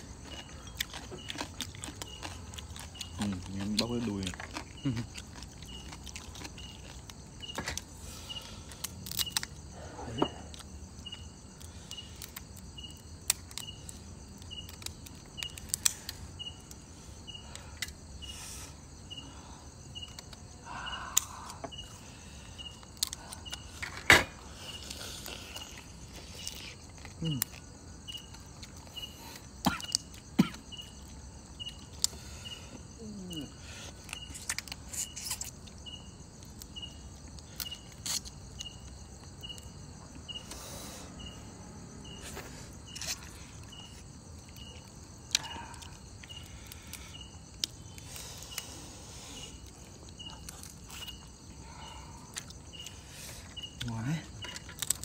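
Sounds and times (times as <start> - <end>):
cricket chirping: 0.0 - 55.0
crab shell cracking: 8.8 - 9.7, 36.5 - 38.8, 54.4 - 55.0.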